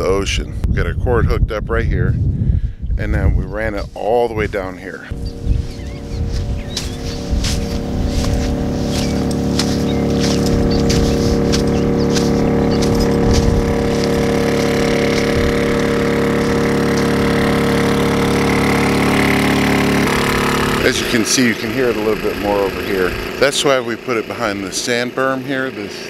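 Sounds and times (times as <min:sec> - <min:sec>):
generator engine humming: 0:03.4 - 0:26.0
footsteps crunching in sand: 0:04.0 - 0:22.6.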